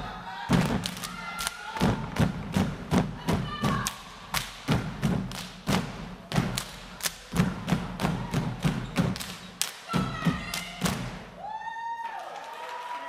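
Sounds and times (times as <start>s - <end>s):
hand claps and slaps: 0.6s - 2.7s, 3.6s - 11.2s.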